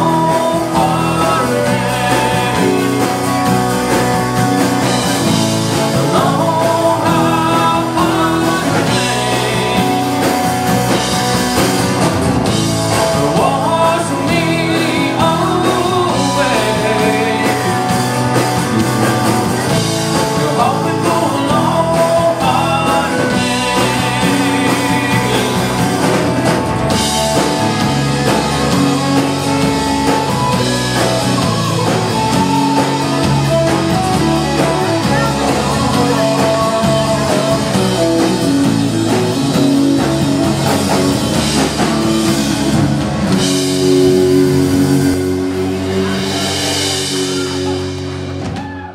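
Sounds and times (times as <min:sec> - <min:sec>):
rock band playing: 0:00.0 - 0:48.9.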